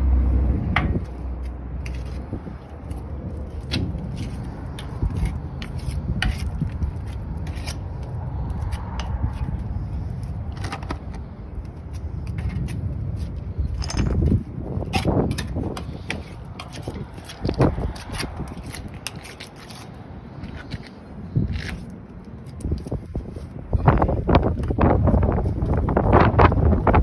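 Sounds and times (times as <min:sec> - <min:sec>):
low rumble: 0:00.0 - 0:15.4.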